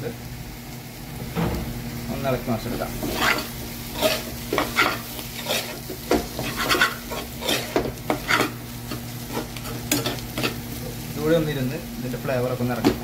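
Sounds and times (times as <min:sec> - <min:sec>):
vegetables sizzling in oil: 0:00.0 - 0:13.0
spoon scraping a steel pan: 0:03.0 - 0:08.6, 0:09.3 - 0:10.6.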